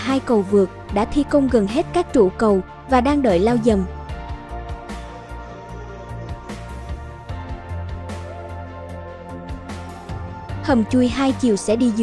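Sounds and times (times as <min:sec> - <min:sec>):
background music with beat: 0:02.6 - 0:12.0.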